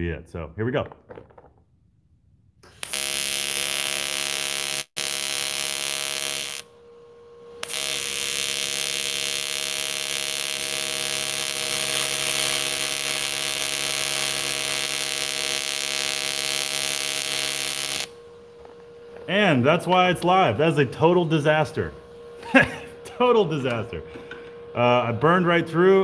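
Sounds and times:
welding arc buzzing: 2.6s - 6.8s, 7.5s - 18.8s.

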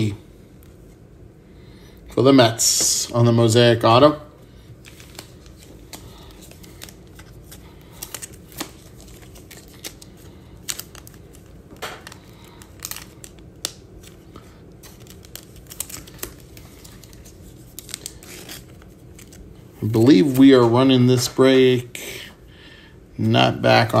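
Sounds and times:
cards being flipped through: 4.8s - 19.5s.

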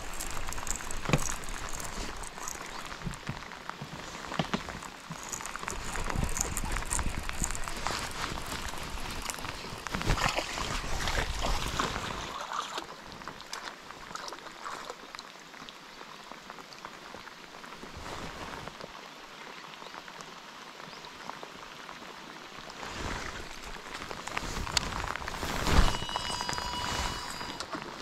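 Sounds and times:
heavy rain on water and jacket: 0.0s - 28.0s
splash: 6.4s - 15.0s.

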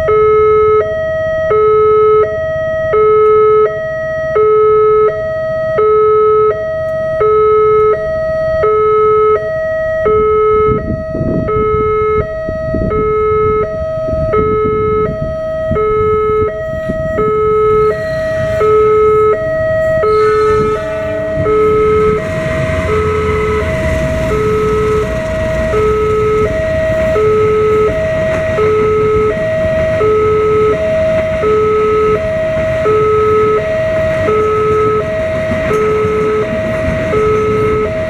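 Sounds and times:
level crossing two-tone alarm: 0.0s - 38.0s
train rumbling past: 13.9s - 38.0s.

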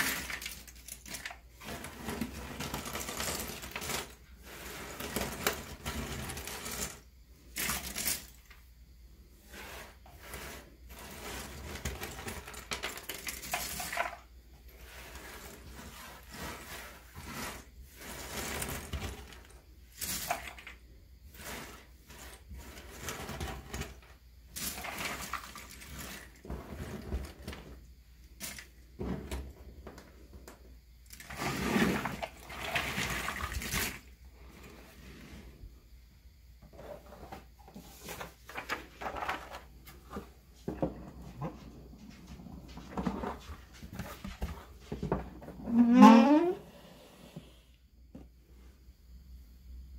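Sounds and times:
puzzle pieces clattering into box: 0.0s - 4.2s, 11.8s - 14.2s
hands stirring loose puzzle pieces: 0.0s - 8.6s, 9.4s - 27.7s.

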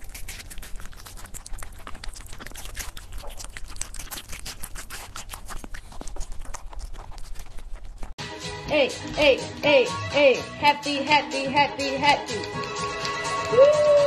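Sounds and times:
rabbit chewing crunchy food: 0.0s - 8.2s.

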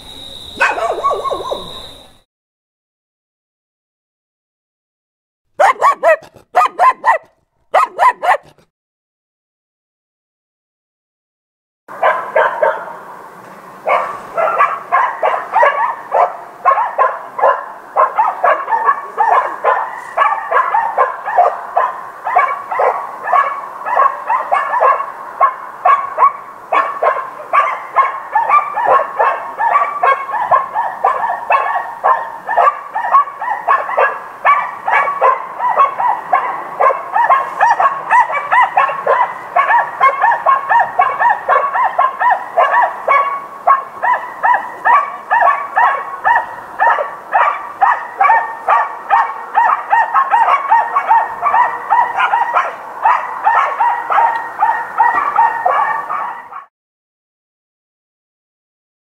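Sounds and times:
dogs barking in the distance: 0.5s - 2.0s, 5.6s - 8.6s, 11.9s - 13.1s, 13.8s - 56.7s.

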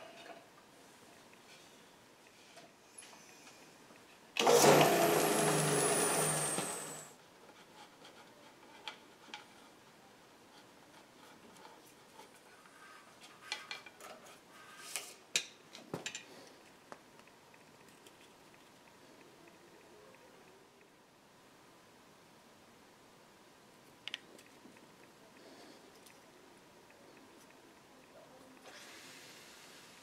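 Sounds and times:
drill press whine spinning down: 4.4s - 7.1s.

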